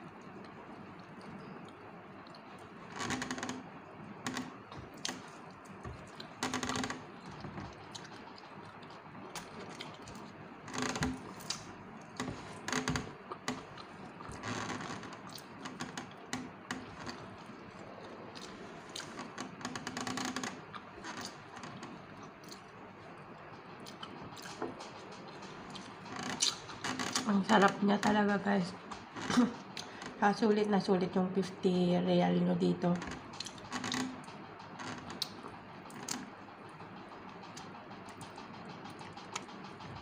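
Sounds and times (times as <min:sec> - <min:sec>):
chewing: 0:00.0 - 0:02.8, 0:04.6 - 0:06.4, 0:07.0 - 0:14.5, 0:20.5 - 0:27.1, 0:33.2 - 0:40.0.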